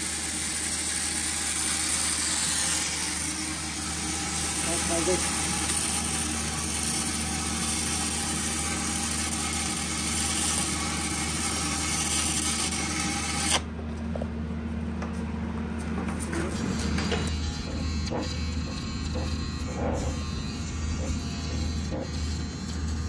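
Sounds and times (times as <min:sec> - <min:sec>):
welding arc hissing and crackling: 0:00.0 - 0:13.5
low machine hum: 0:00.0 - 0:23.0.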